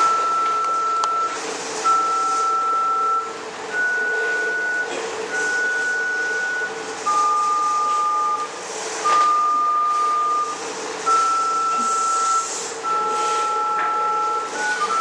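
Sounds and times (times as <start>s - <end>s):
phone keypad beeps: 9.1s - 15.0s.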